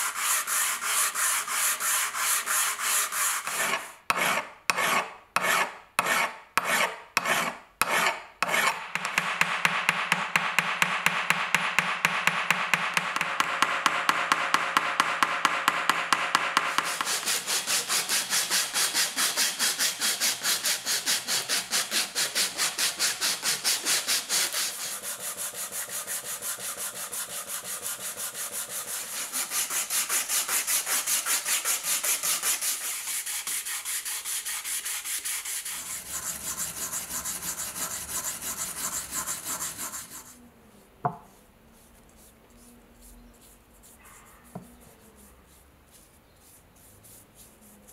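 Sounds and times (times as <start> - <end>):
abrasive rubbing on wood: 16.7 - 40.4.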